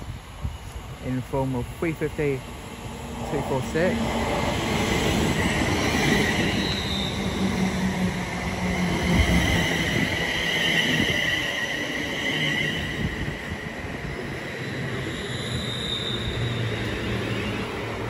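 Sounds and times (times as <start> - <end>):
low train hum: 0.0 - 18.0
train brakes squealing: 5.3 - 7.8, 8.7 - 13.6, 14.7 - 17.9.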